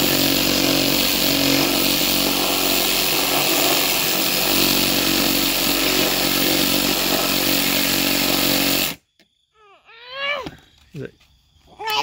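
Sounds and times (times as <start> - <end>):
reciprocating saw cutting wood: 0.0 - 9.0.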